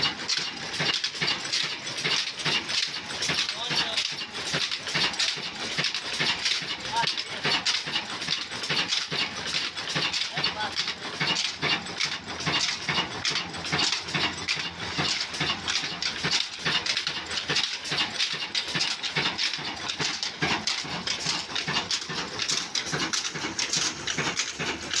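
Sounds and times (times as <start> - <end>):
diesel engine knocking steadily: 0.0 - 25.0.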